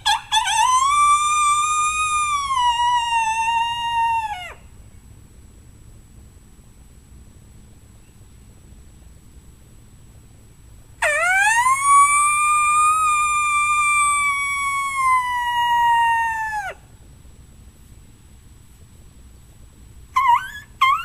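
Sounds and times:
coyote howler call: 0.0s - 4.7s, 11.0s - 16.8s, 20.1s - 21.0s.

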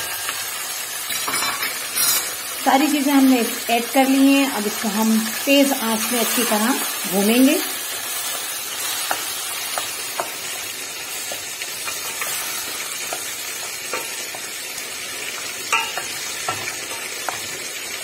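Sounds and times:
meat sizzling in a pot: 0.0s - 18.0s.

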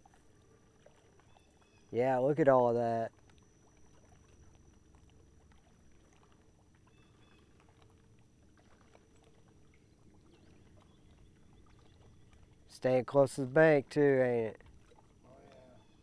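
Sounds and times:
water lapping against boat hull: 0.0s - 16.0s
small ticks: 3.1s - 9.3s.

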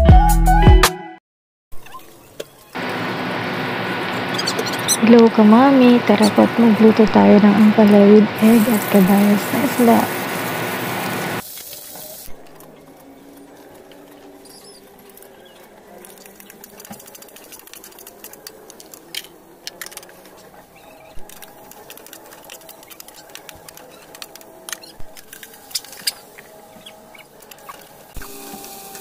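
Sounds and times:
oil popping and crackling: 7.8s - 12.6s, 13.5s - 20.6s, 21.2s - 29.0s
oil sizzling in a frying pan: 8.4s - 12.3s.

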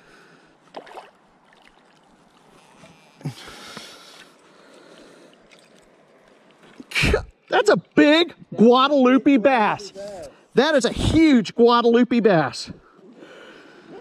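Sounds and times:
river water splashing: 0.6s - 7.6s.

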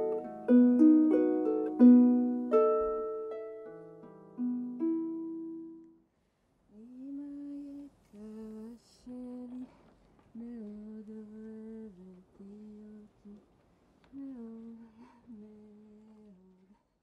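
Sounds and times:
person humming a tune: 0.0s - 3.1s
plucked string instrument notes: 0.0s - 6.0s.

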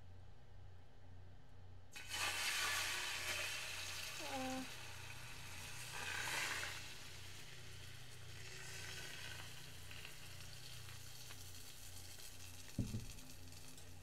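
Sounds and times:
egg sizzling in a skillet: 2.0s - 14.0s.

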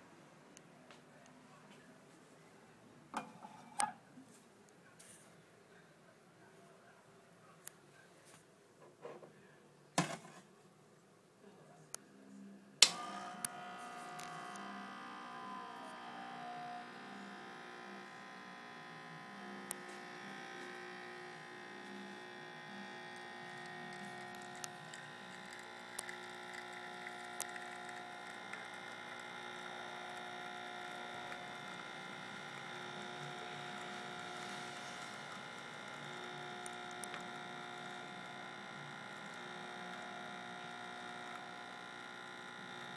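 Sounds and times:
espresso pump humming: 12.8s - 42.9s.

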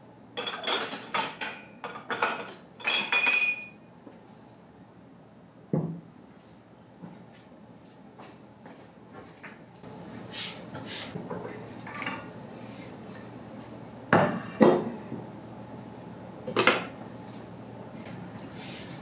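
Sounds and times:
kitchenware clinking and rattling: 0.4s - 3.8s.

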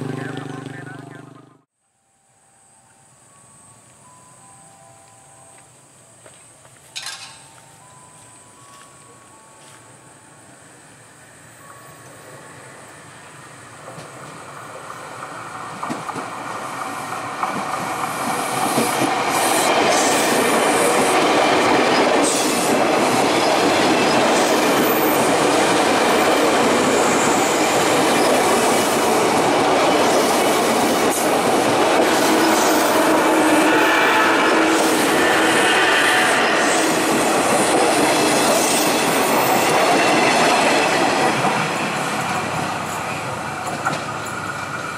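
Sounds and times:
train wheels rushing on rail: 12.6s - 44.9s
train wheel squeal: 21.8s - 25.4s, 32.2s - 41.0s.

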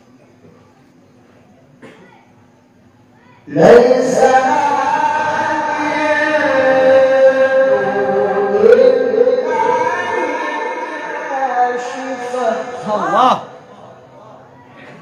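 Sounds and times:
man reciting melodically: 3.5s - 14.3s.

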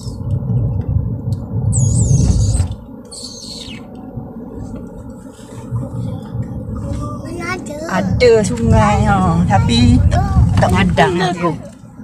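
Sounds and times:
road and tyre rumble: 0.0s - 12.0s
high falling chirps: 1.7s - 3.9s.

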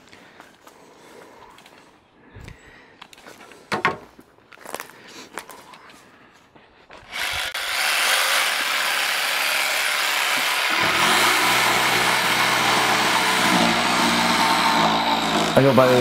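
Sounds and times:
jigsaw blade cutting wood: 7.1s - 16.0s
jigsaw motor running: 7.1s - 16.0s.

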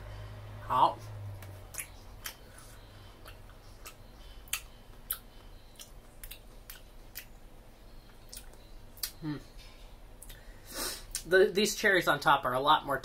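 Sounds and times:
person chewing: 1.4s - 7.4s, 8.0s - 9.4s, 10.2s - 10.4s.

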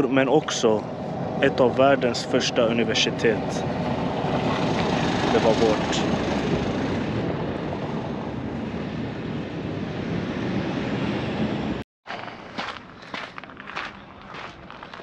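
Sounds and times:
wind on microphone: 0.0s - 11.8s.

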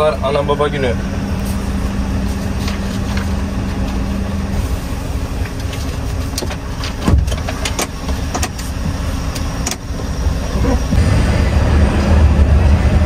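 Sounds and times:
truck engine idling: 0.0s - 13.0s
sharp clicks and knocks: 5.4s - 9.9s.

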